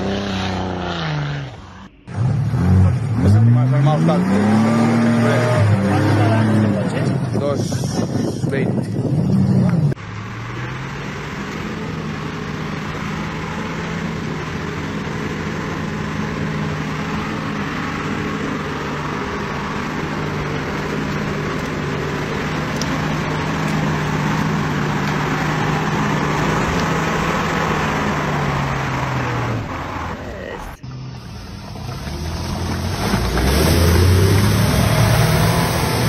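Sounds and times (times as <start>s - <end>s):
truck engine pulling under load: 9.2s - 36.0s.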